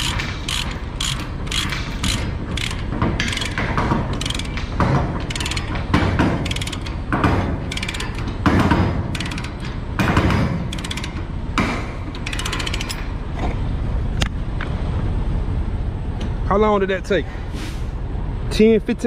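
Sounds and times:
ratchet pawl clicking: 0.0s - 7.0s, 7.7s - 8.4s, 9.1s - 9.8s, 10.7s - 11.3s, 12.1s - 13.1s.

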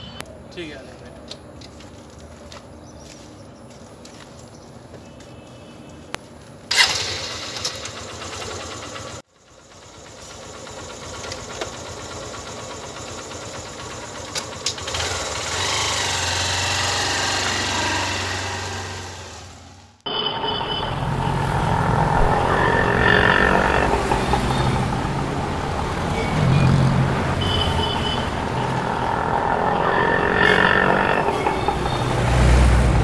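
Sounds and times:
motorcycle engine running: 6.7s - 19.7s, 20.9s - 33.0s.

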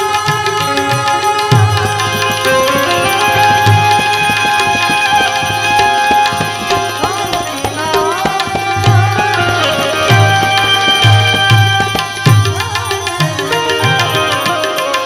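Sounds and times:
held melody instrument tones: 0.0s - 15.0s
small hand cymbals clashing: 0.0s - 15.0s
tabla playing quick rhythm: 0.0s - 15.0s.

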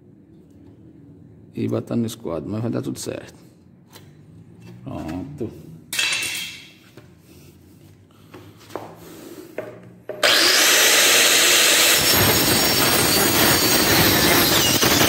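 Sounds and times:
power saw running: 10.1s - 15.0s
saw blade cutting wood: 10.2s - 15.0s.

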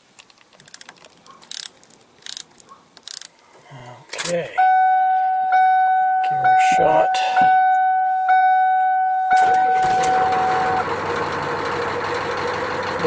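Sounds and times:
dashboard warning chime dinging: 4.6s - 11.0s
diesel engine cranking and idling: 9.3s - 13.0s.

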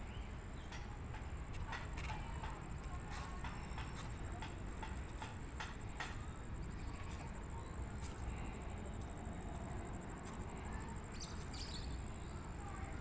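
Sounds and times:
distant train rumble: 0.0s - 13.0s
sharp clicks of wheels: 0.6s - 6.4s
faint high whine: 2.2s - 13.0s.

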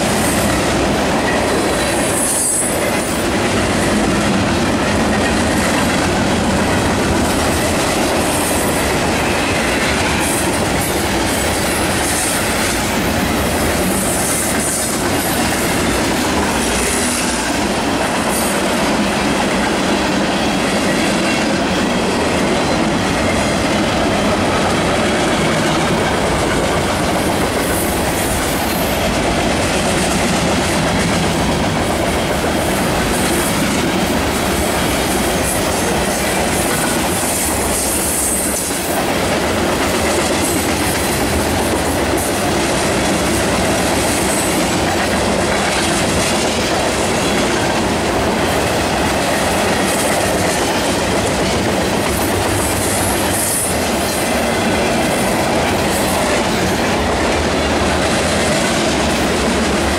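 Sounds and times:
freight train wheels rumbling on rails: 0.0s - 59.9s.

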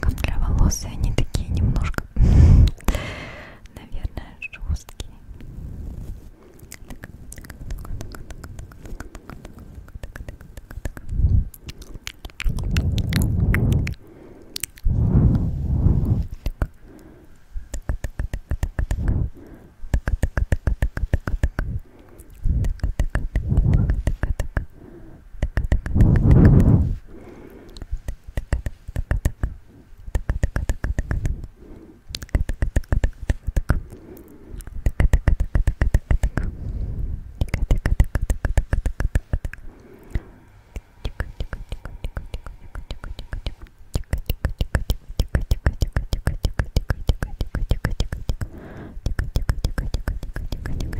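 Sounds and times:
tongue and lip clicks: 0.0s - 3.0s, 3.6s - 5.2s, 6.4s - 50.9s
soft low whooshes: 5.2s - 6.5s, 12.5s - 20.4s, 21.1s - 24.4s, 25.8s - 27.2s.

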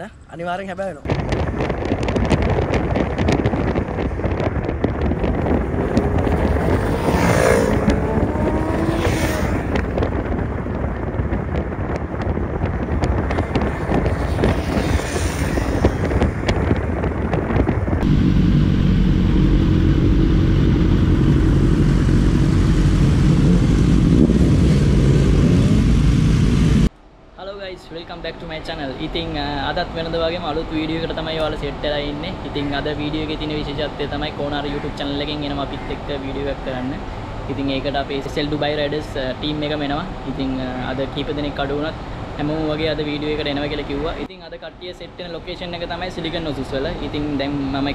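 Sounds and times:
onboard motorcycle engine drone: 1.1s - 26.9s
motorcycles passing at speed: 1.3s - 26.9s.

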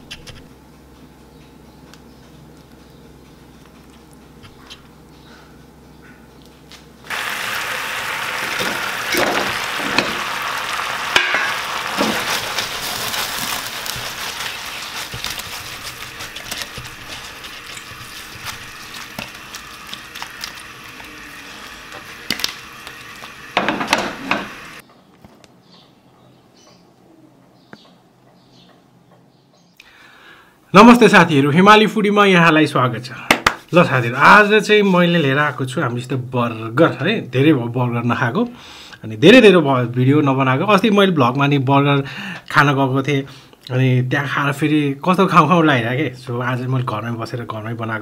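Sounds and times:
chicken frying in a pan: 7.1s - 24.8s
utensil scraping a pan: 11.2s - 20.6s.

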